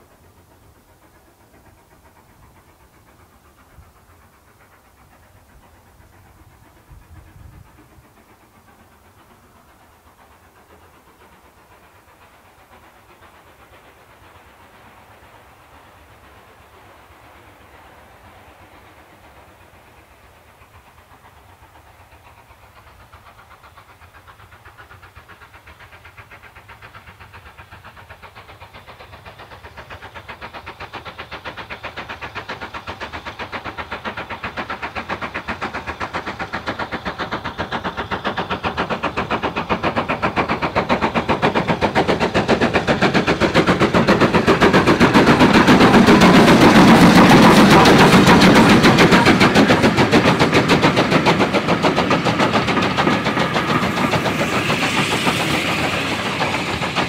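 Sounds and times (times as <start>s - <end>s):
steam locomotive exhaust chuffs: 0.0s - 57.0s.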